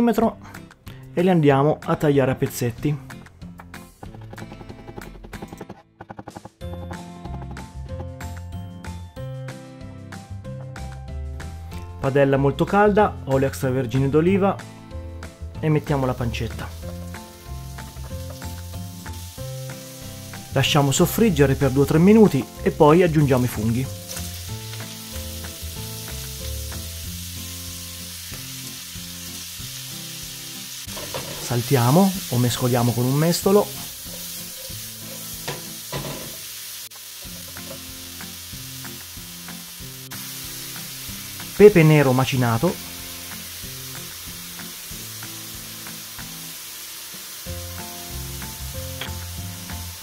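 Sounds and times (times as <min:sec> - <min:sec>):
soft background music: 0:00.0 - 0:05.4, 0:06.5 - 0:36.6, 0:37.2 - 0:50.0
food sizzling in a frying pan: 0:15.2 - 0:50.0.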